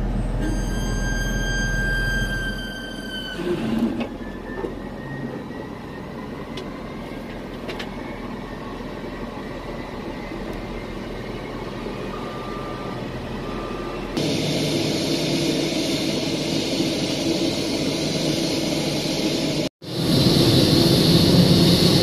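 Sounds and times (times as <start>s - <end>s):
jet engines idling: 4.0s - 22.0s.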